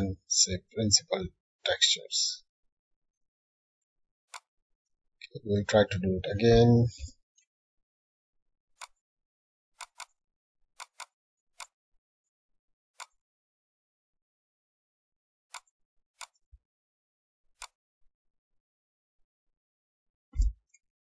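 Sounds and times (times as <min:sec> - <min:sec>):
computer mouse clicks: 0:09.8 - 0:10.2, 0:10.8 - 0:11.7, 0:13.0 - 0:13.2.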